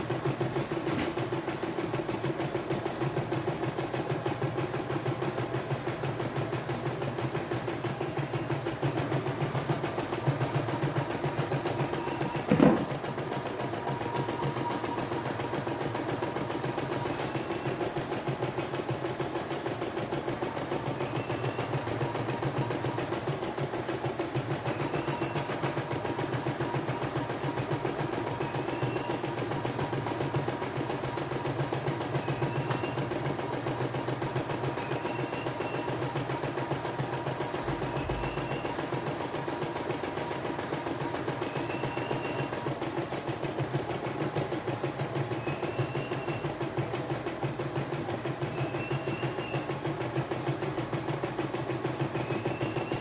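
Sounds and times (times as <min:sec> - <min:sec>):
embroidery machine stitching: 0:00.0 - 0:53.0.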